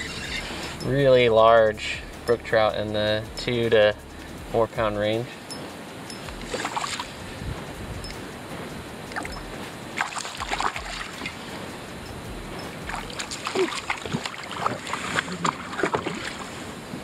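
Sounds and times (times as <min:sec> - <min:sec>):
fish splashing in water: 0:06.2 - 0:07.4, 0:09.0 - 0:16.6.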